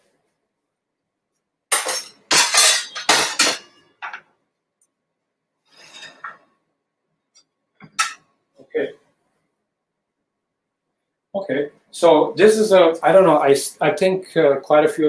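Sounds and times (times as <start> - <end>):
dish clinking: 1.7 - 4.2, 7.8 - 8.2
dishes clattering: 1.7 - 4.3, 5.9 - 6.5, 7.8 - 8.3
soft scraping: 5.7 - 6.4.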